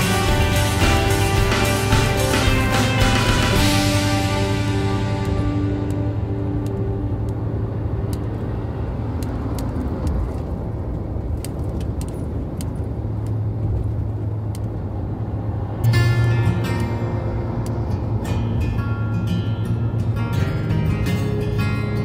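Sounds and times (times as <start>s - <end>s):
loud music: 0.0s - 8.0s
car cabin road rumble: 0.0s - 22.0s.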